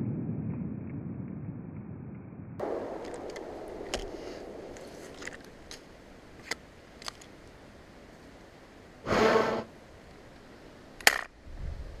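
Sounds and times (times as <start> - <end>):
low rumble: 0.0 - 7.0
heavy exhale: 4.1 - 4.5.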